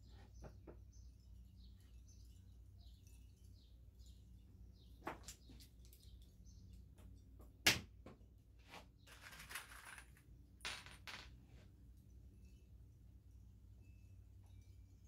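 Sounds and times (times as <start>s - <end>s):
screws clinking on wooden table: 9.1s - 11.4s.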